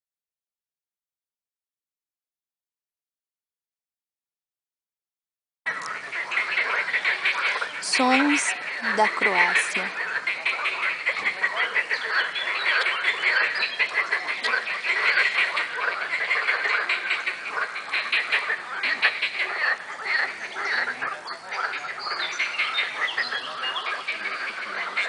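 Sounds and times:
chorus of frogs croaking: 5.7 - 25.0.

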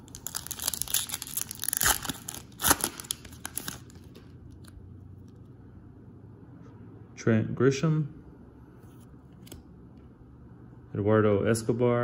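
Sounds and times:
loud foil rips: 0.0 - 4.0
foil wrapper tearing and crinkling: 0.0 - 4.1.

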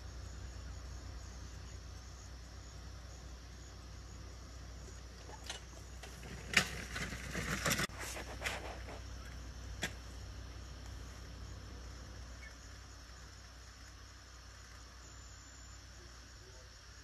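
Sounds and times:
high insect trill: 0.0 - 17.0
camera rustling against leaves: 5.2 - 9.4.

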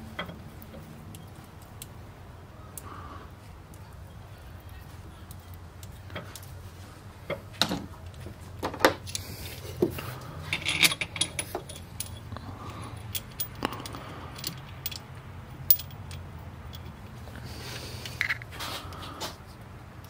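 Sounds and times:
low steady hum: 0.0 - 20.0
metal tools clinking: 10.4 - 17.1.

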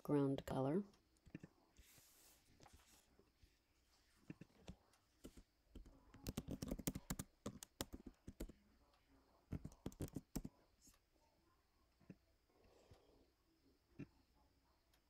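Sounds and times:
typing on keyboard: 5.2 - 8.6, 9.5 - 10.6.

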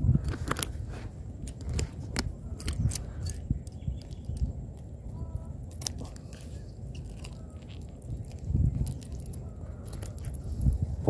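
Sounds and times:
metal pliers clicking and scraping: 0.2 - 0.8, 1.4 - 4.9.

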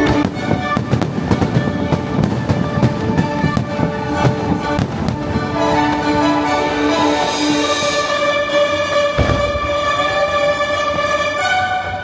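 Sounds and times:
firework bangs and crackle: 0.0 - 5.9, 9.2 - 10.0
music over loudspeakers: 0.0 - 12.0.

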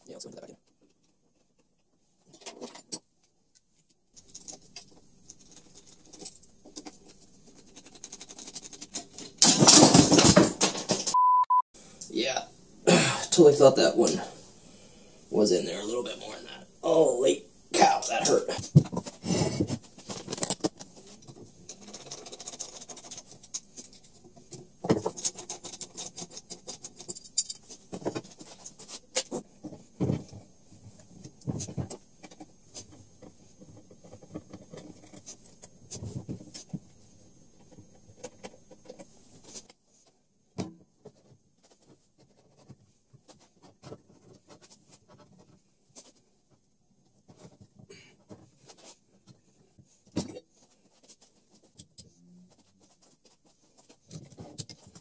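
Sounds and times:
metal parts clicking and clinking: 21.7 - 24.2, 25.0 - 29.3.

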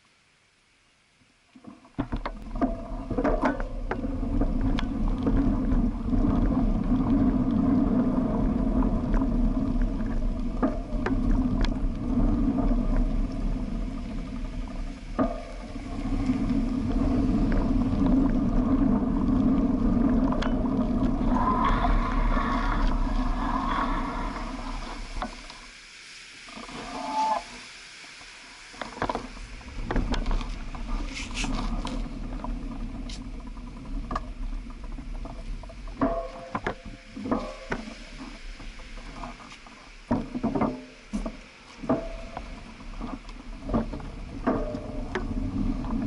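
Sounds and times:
clicks and knocks from road bumps: 1.6 - 25.6, 28.8 - 46.0
wheels rumbling on rough asphalt: 1.8 - 25.8, 28.8 - 46.0
wind buffeting: 2.8 - 25.6.

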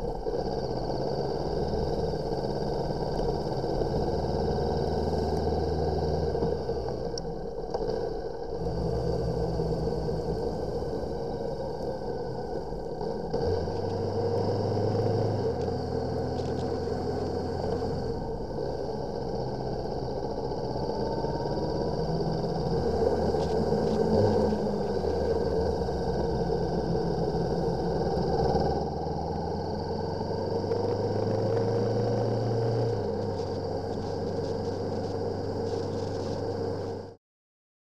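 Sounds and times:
motorcycle engine running: 0.0 - 37.2
wind and road rush: 8.6 - 37.1.

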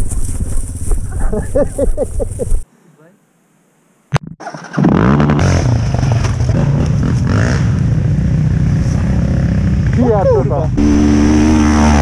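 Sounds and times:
quad bike engine running: 4.8 - 12.0.

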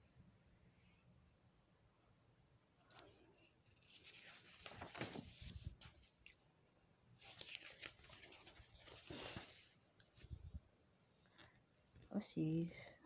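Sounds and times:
paper pages turning: 2.9 - 6.5, 7.2 - 10.3.

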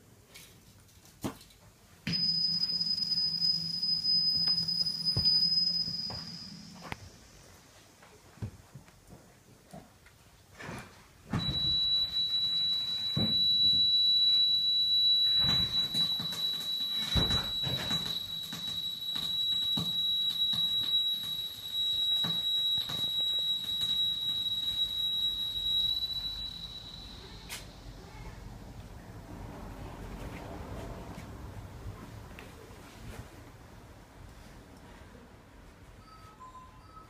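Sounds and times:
high-pitched electronic tone: 2.2 - 7.0.

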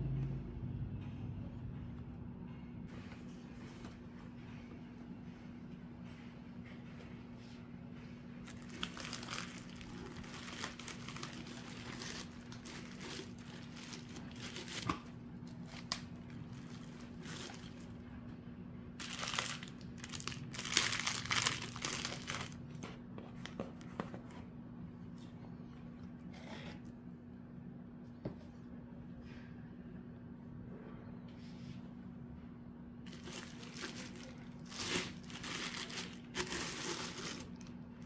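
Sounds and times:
plastic wrapping crinkling: 8.4 - 18.0, 19.0 - 23.6, 33.0 - 37.8.

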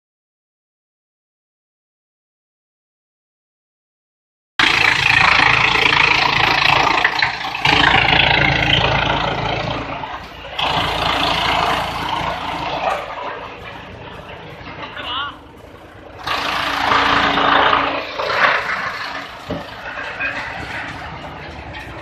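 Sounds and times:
wood chipper chipping wood: 4.6 - 13.4, 16.0 - 22.0.

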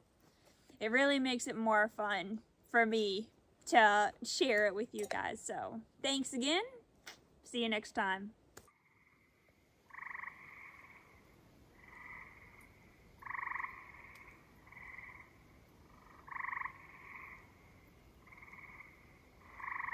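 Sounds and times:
frog calling in short trills: 9.9 - 11.1.

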